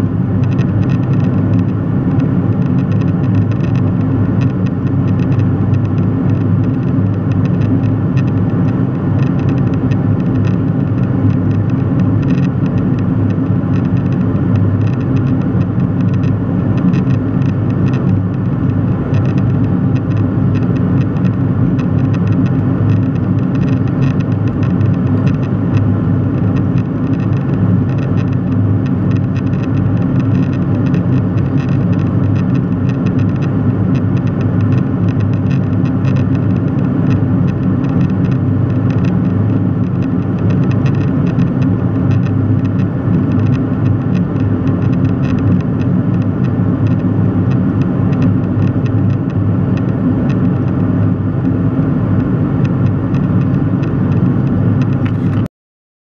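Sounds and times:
jet airliner cabin drone: 0:00.0 - 0:55.5.

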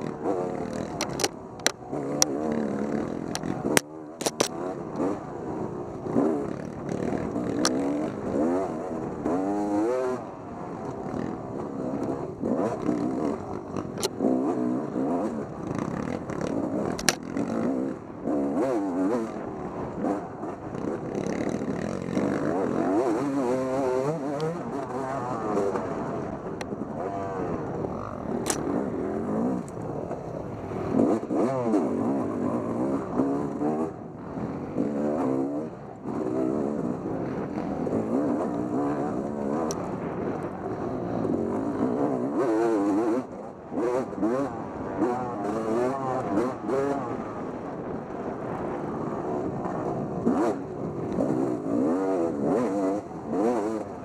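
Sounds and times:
off-road engine revving: 0:00.0 - 0:54.0
sharp clicks and knocks: 0:00.6 - 0:02.3, 0:02.9 - 0:05.0, 0:15.7 - 0:17.4.

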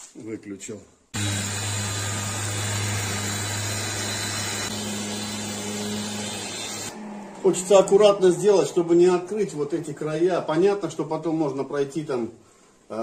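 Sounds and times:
orbital sander running: 0:01.2 - 0:07.0.

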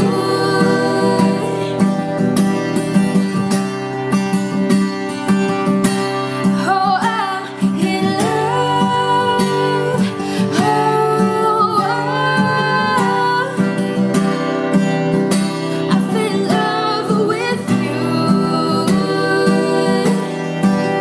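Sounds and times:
person singing: 0:00.0 - 0:02.6, 0:06.5 - 0:14.1, 0:15.7 - 0:21.0
plucked acoustic guitar: 0:00.0 - 0:21.0.

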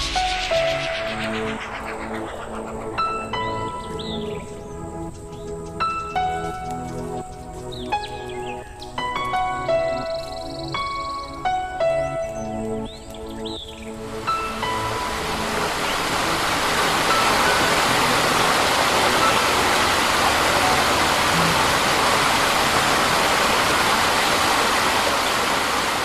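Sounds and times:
waterfall over rocks: 0:14.1 - 0:26.0.

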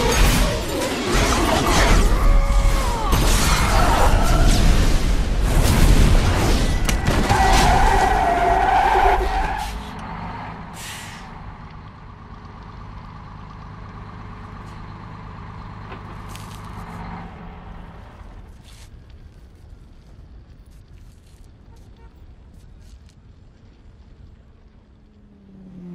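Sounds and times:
crashing debris: 0:00.0 - 0:09.4
low vehicle engine hum: 0:03.8 - 0:25.9.

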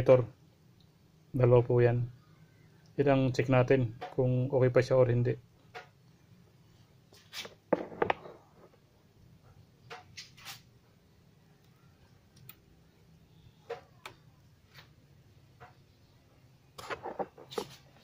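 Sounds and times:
objects clicking and knocking: 0:07.7 - 0:08.8.

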